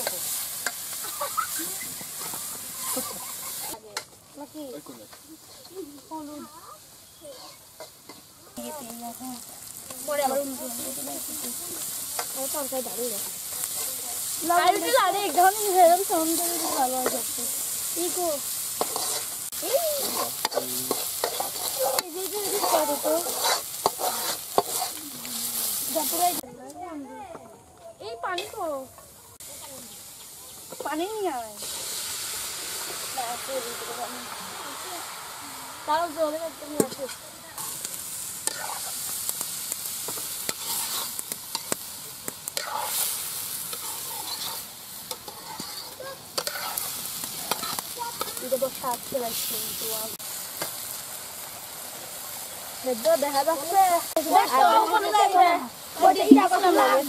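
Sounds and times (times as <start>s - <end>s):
metal spoon scraping a pan: 0.0s - 4.2s, 5.0s - 5.9s, 7.2s - 8.3s, 10.1s - 26.2s, 36.8s - 49.8s
vegetables sizzling in oil: 0.0s - 27.3s, 27.9s - 57.0s
metal spoon scraping pan: 7.2s - 8.3s, 18.7s - 25.0s, 38.4s - 39.1s, 40.1s - 41.8s, 42.6s - 48.4s.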